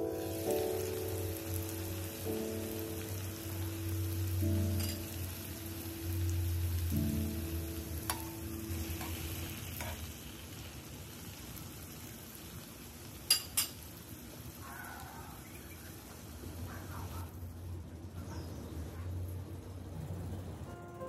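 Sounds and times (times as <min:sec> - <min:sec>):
cabbage sizzling in bubbling sauce: 0:00.0 - 0:16.7.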